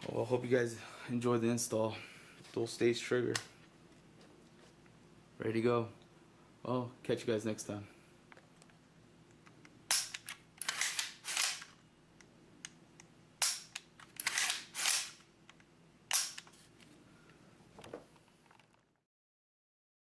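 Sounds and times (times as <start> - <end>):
rifle action rattling: 9.9 - 11.8.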